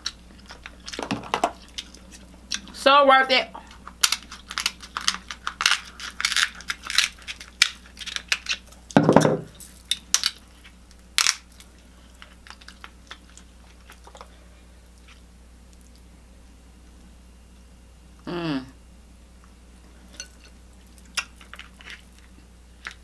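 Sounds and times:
crab shells cracking by hand: 0:03.7 - 0:09.0, 0:09.8 - 0:14.3.

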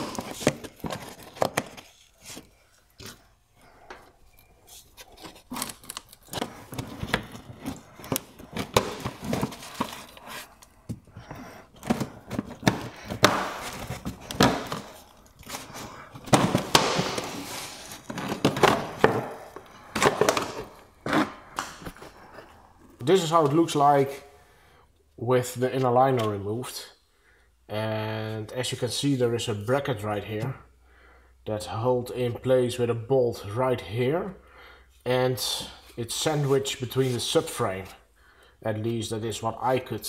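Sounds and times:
plastic clips clicking and scraping: 0:04.4 - 0:11.0.

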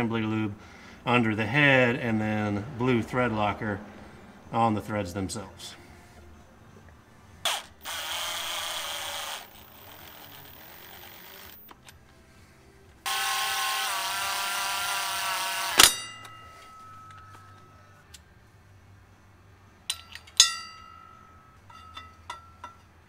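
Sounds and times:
cordless ratchet whining: 0:07.5 - 0:11.8, 0:13.1 - 0:16.0
short metallic ring: 0:15.8 - 0:18.0, 0:19.9 - 0:23.0.

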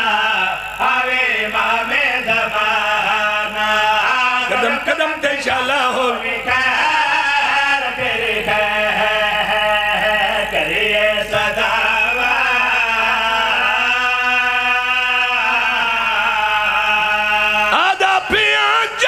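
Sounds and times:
men chanting over microphone: 0:00.0 - 0:19.0.

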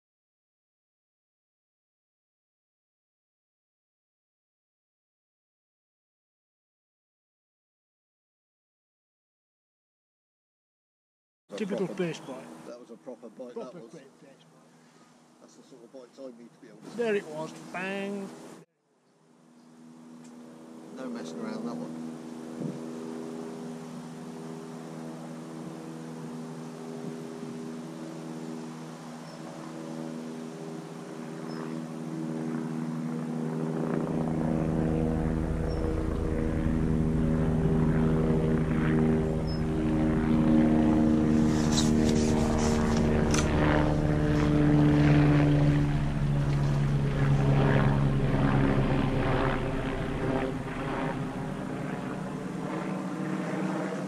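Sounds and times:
propeller aircraft droning: 0:11.5 - 0:54.0.

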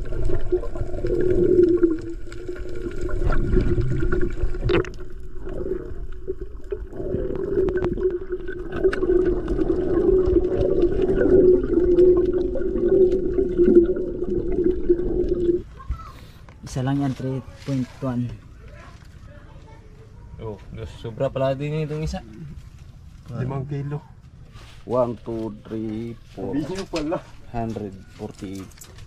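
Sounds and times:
bubbling: 0:00.0 - 0:16.1
muffled underwater water movement: 0:00.0 - 0:16.1.

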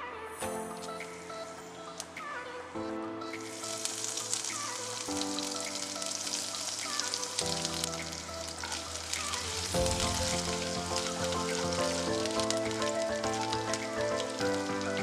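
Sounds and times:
background music: 0:00.0 - 0:15.0
spices sizzling in hot oil: 0:03.4 - 0:15.0.

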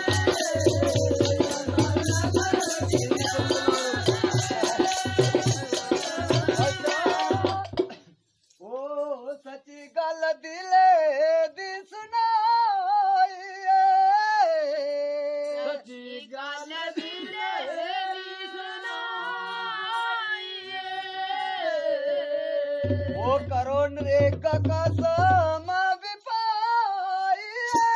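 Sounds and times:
person singing unaccompanied: 0:00.0 - 0:08.0, 0:08.6 - 0:27.9
percussion: 0:00.0 - 0:27.9.

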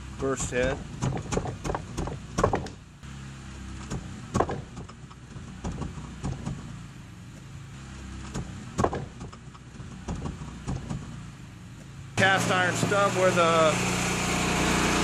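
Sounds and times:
sharp knocks: 0:00.6 - 0:02.8, 0:03.8 - 0:06.6, 0:08.3 - 0:11.1
hydraulic power pack running: 0:12.2 - 0:15.0.

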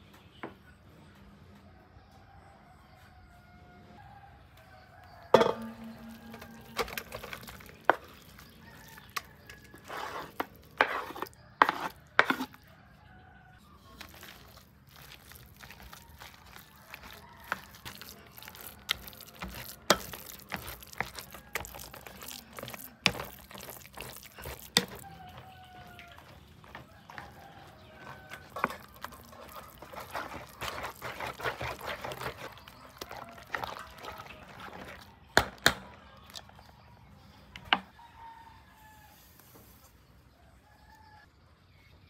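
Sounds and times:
scraping or stirring: 0:05.3 - 0:12.7, 0:13.7 - 0:36.8
utensils knocking on dishes and pots: 0:05.4 - 0:07.6.

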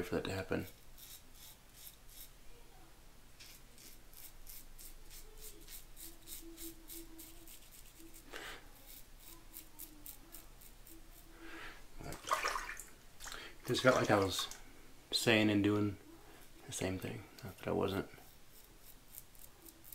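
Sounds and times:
safety razor scraping stubble: 0:00.6 - 0:02.3, 0:03.4 - 0:11.3, 0:17.4 - 0:19.9.

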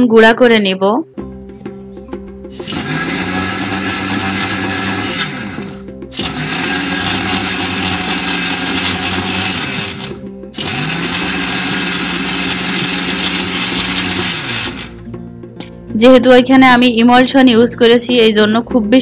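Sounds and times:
mixer grinder motor whine: 0:02.6 - 0:15.0.

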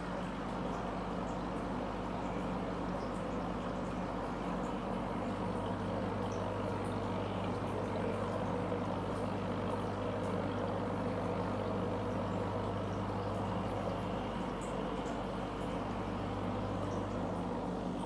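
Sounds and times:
air pump humming: 0:00.0 - 0:18.0
bubbles in water: 0:00.0 - 0:18.0.

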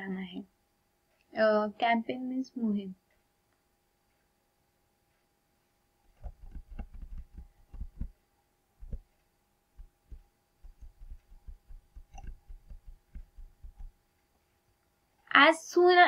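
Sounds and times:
soft low thumps: 0:06.1 - 0:08.2, 0:08.8 - 0:09.1, 0:09.8 - 0:14.0.

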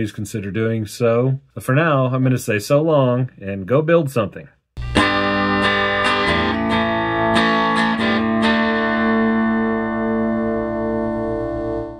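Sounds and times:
guitar picked notes and chord: 0:04.8 - 0:11.9.

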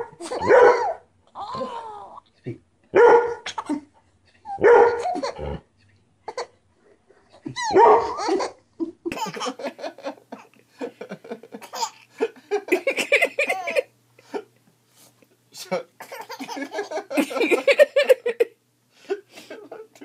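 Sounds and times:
dog barking: 0:00.0 - 0:01.0, 0:03.0 - 0:03.4, 0:04.6 - 0:05.2, 0:07.7 - 0:08.2
baby giggling: 0:07.4 - 0:09.8, 0:11.6 - 0:12.1, 0:12.7 - 0:13.9, 0:16.0 - 0:18.4
baby laughing: 0:07.4 - 0:09.8, 0:11.6 - 0:12.1, 0:12.7 - 0:13.9, 0:16.0 - 0:18.4.

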